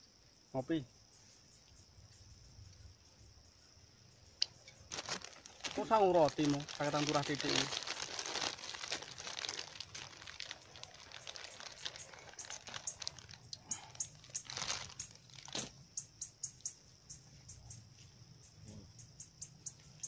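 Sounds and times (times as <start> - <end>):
plastic snack bag crinkling: 4.9 - 15.7.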